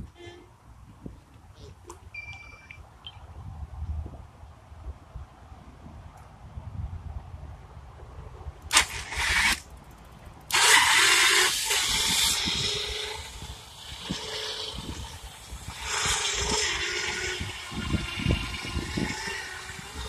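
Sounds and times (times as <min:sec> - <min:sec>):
winch motor whining: 0:10.5 - 0:20.0.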